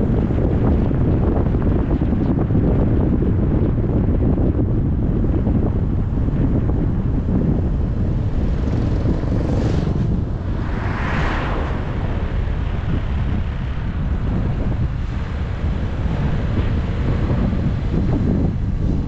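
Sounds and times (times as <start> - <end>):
wind buffeting microphone: 0.0 - 19.0
road noise: 5.7 - 19.0.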